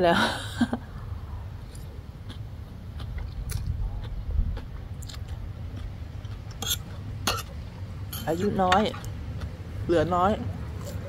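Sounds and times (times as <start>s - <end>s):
person chewing crunchy food: 1.6s - 7.7s.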